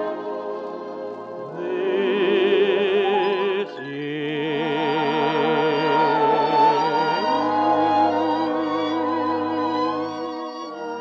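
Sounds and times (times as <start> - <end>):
orchestra playing: 0.0 - 11.0.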